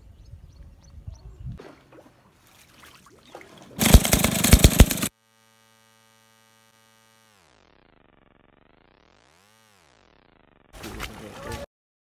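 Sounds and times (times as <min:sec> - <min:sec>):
chainsaw at full throttle: 0:03.8 - 0:05.2.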